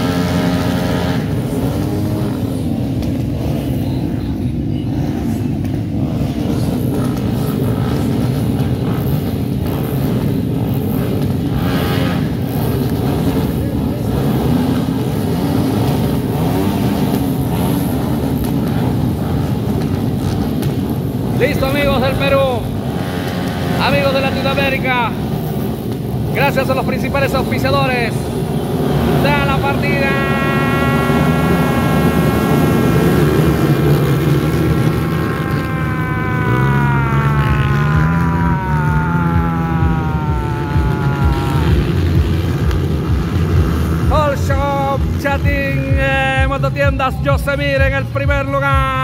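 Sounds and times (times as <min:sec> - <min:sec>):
motorcycle engines revving: 0:00.0 - 0:49.0.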